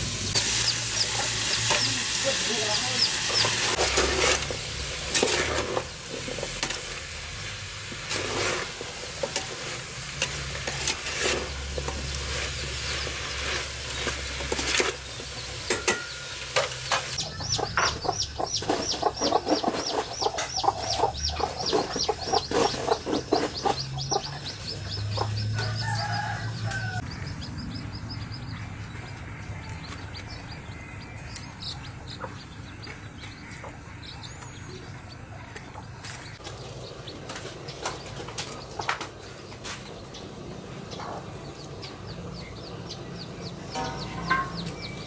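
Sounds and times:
vegetables sizzling in a pot: 0:00.0 - 0:17.4
scraping knocks in a pot: 0:03.3 - 0:06.9, 0:07.9 - 0:24.2
chicken clucking: 0:16.9 - 0:27.5.

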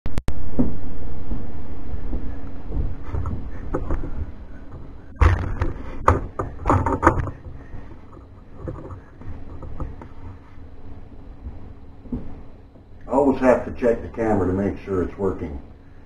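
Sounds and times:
sharp knocks and clatters: 0:00.4 - 0:10.4.

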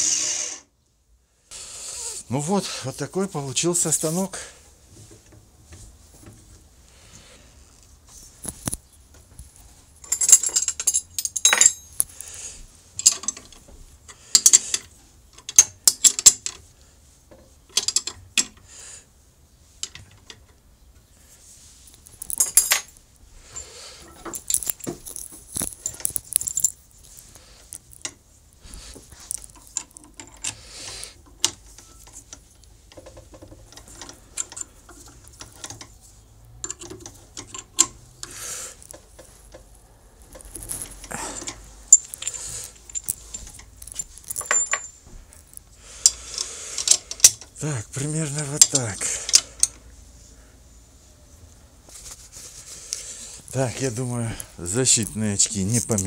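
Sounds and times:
metallic clinks and knocks: 0:08.3 - 0:12.3, 0:21.8 - 0:28.2, 0:28.8 - 0:49.8
rustling of hands: 0:21.1 - 0:37.4, 0:38.0 - 0:47.1, 0:48.0 - 0:56.0.

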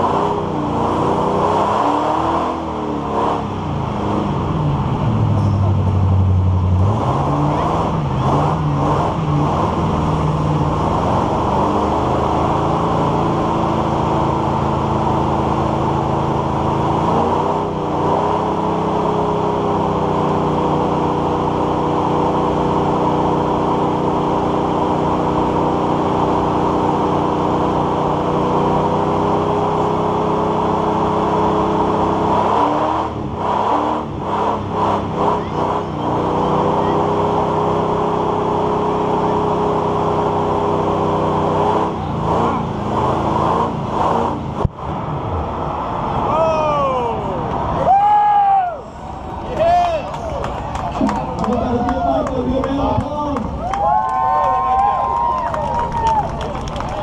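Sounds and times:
truck engine at high revs: 0:00.0 - 0:57.0
tyres spinning on pavement: 0:48.8 - 0:57.0.

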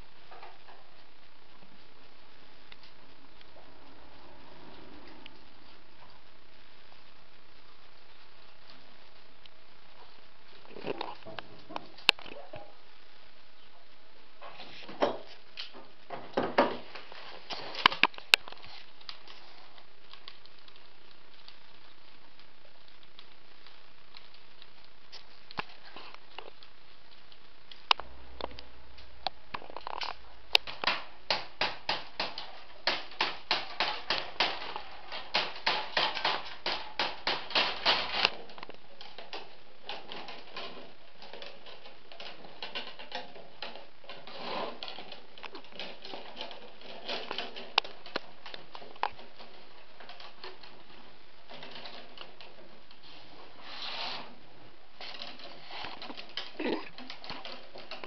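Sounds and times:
willow rods clicking and creaking: 0:14.5 - 0:58.0.

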